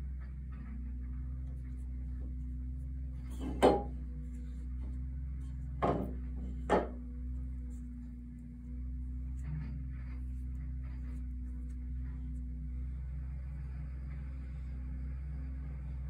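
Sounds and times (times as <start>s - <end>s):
steady low hum: 0.0s - 16.0s
tools knocking: 3.3s - 4.0s, 5.8s - 7.0s.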